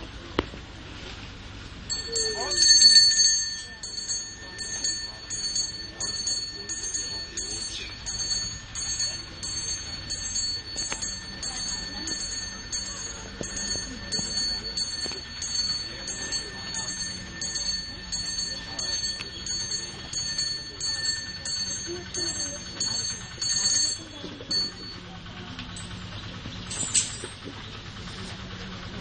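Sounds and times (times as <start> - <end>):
brass hand bell ringing: 1.9 - 25.0, 26.7 - 27.4.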